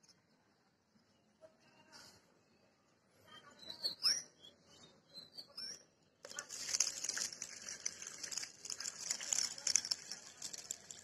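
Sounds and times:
water pouring and splashing into bucket: 0:06.2 - 0:11.0.

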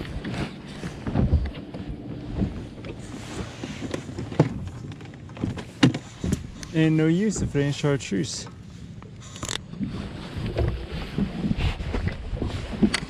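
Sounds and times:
wind buffeting microphone: 0:00.0 - 0:04.8
handling knocks and rustles: 0:00.0 - 0:07.8.

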